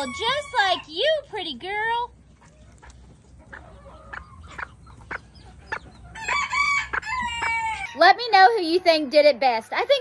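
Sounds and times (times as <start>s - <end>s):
chickens clucking and chirping: 0.0s - 10.0s
rooster crowing: 6.2s - 8.0s.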